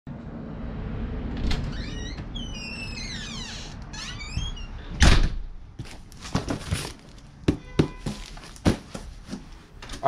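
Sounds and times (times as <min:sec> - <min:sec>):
door hinges squealing: 0:01.4 - 0:05.1.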